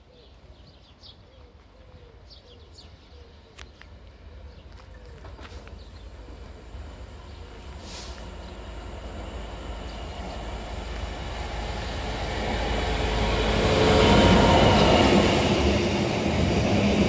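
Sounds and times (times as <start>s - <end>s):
diesel locomotive engine rumble: 3.9s - 17.0s
train wheel noise: 4.7s - 17.0s.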